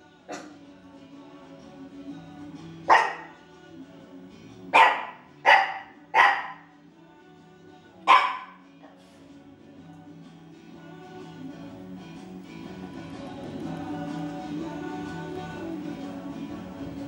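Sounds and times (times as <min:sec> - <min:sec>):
quiet background music: 0:00.0 - 0:17.0
small dog barking: 0:00.3 - 0:00.6, 0:02.9 - 0:03.4, 0:04.7 - 0:06.7, 0:08.0 - 0:08.6.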